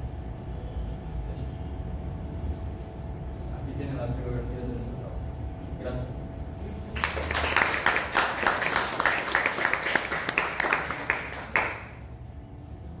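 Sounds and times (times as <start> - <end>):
audience clapping: 6.9 - 12.1.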